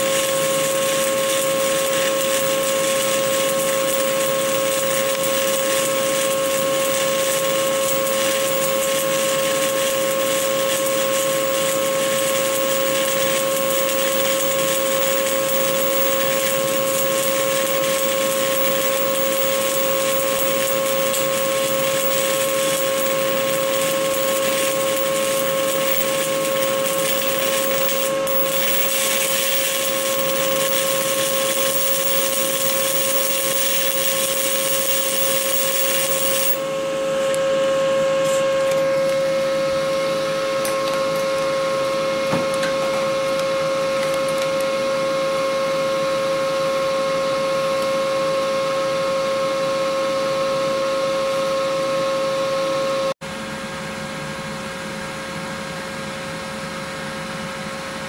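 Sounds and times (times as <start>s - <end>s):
welding arc crackling hiss: 0.0s - 36.7s.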